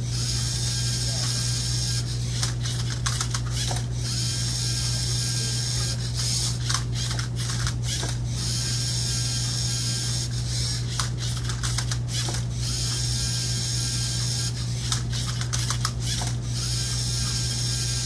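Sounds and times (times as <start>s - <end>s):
robot motors whirring: 0.0s - 18.0s
robot arm clicks: 2.4s - 3.9s, 10.9s - 12.5s, 14.8s - 16.4s.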